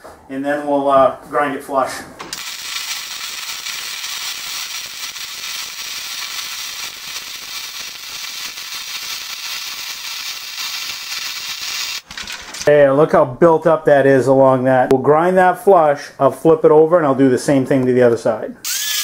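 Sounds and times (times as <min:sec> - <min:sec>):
welding arc crackling: 0:02.2 - 0:12.7.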